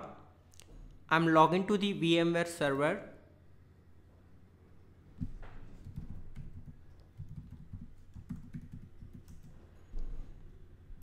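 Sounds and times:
typing on computer keyboard: 5.2 - 9.6.

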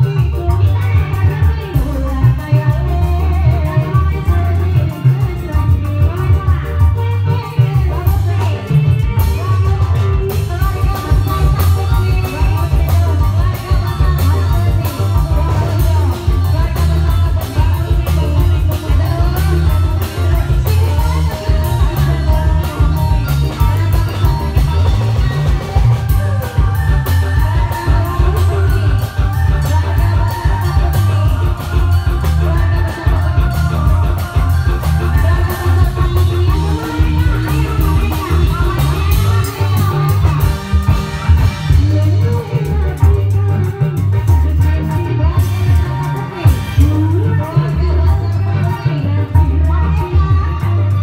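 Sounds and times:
loud dance music with drumming: 0.0 - 51.0.

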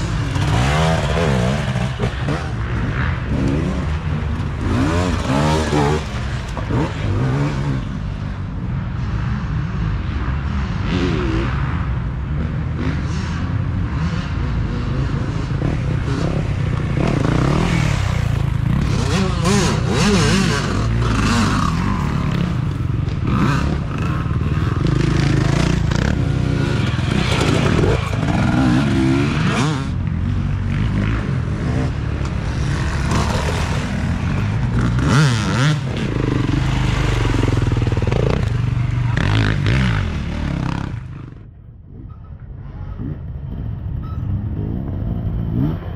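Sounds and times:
dirt bike engines revving: 0.0 - 45.9
bikes scraping and clattering: 15.4 - 41.4.

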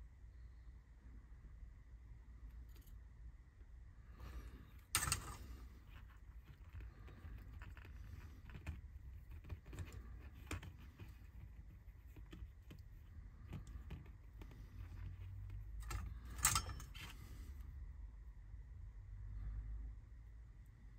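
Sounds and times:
clicks and rattles of wires: 4.8 - 17.5.

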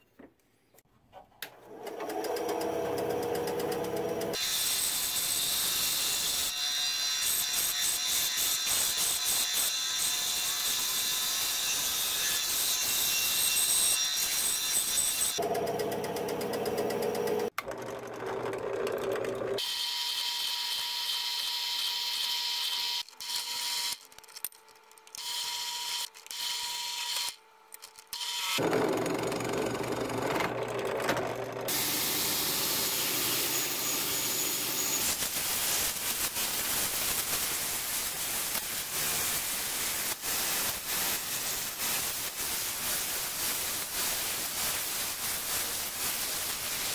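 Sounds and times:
bandsaw cutting wood: 1.7 - 21.1, 28.2 - 42.0
belt grinder sanding: 25.0 - 46.9.

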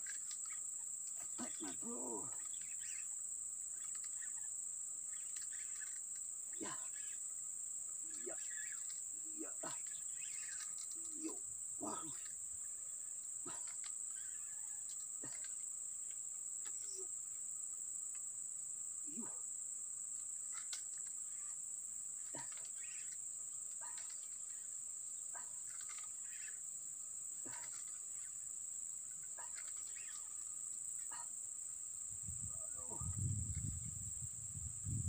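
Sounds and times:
high-pitched insect drone: 0.0 - 35.0
short insect calls: 0.0 - 35.0.

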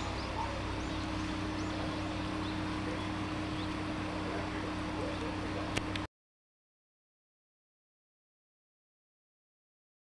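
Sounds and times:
bird chirps: 0.0 - 5.3
constant low hum: 0.0 - 6.1.

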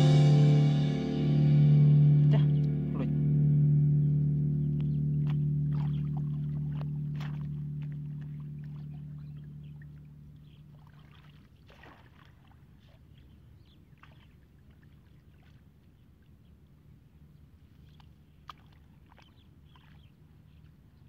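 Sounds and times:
low musical drone: 0.0 - 11.4
hands splashing in muddy water: 4.8 - 9.9, 10.6 - 13.3, 17.8 - 20.3.

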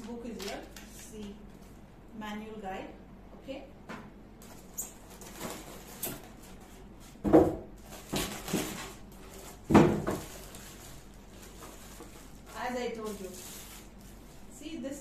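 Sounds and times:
plastic wrap rustling: 4.4 - 6.9, 7.8 - 15.0.

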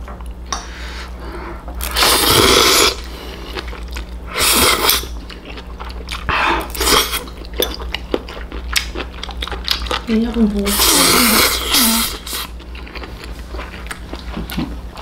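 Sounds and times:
slurping noodles: 1.9 - 3.1
chewing: 5.2 - 10.2, 11.7 - 15.0.

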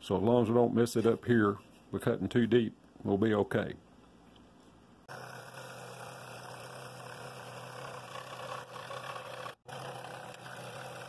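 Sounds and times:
scroll saw cutting wood: 5.1 - 11.0.

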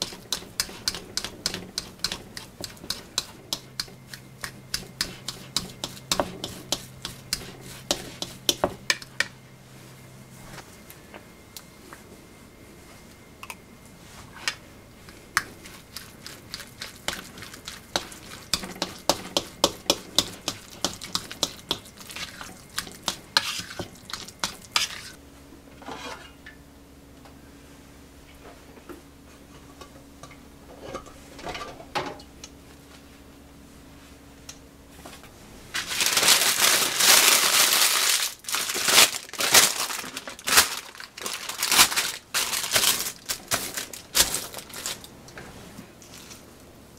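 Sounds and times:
utensil scraping against bowl: 0.0 - 8.7, 15.6 - 25.2
steady low hum: 0.0 - 46.9
baking paper crinkling: 35.7 - 45.2.

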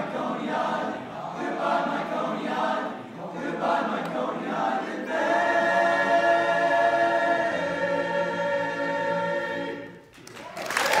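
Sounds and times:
boys' choir singing a cappella: 0.0 - 10.1
applause: 10.1 - 11.0.

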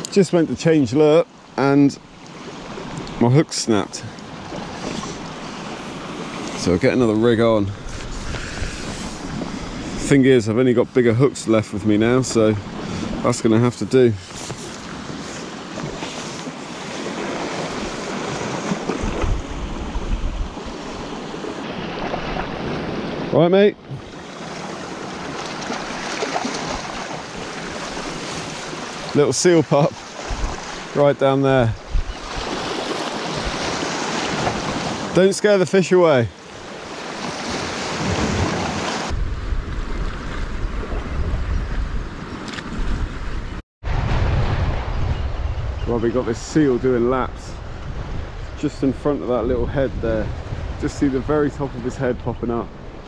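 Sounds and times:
sea waves washing against rocks: 11.7 - 40.3
wind buffeting microphone: 16.8 - 23.3, 30.2 - 35.1, 37.3 - 53.0.

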